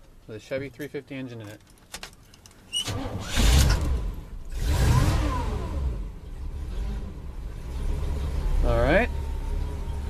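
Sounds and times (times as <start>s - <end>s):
car engine revving and idling: 2.9s - 10.0s.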